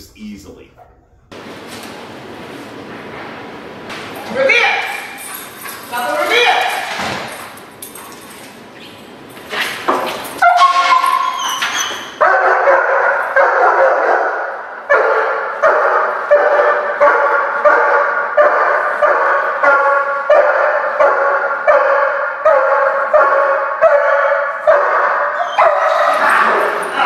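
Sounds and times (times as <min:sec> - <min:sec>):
dog barking rapidly: 0:12.2 - 0:26.8.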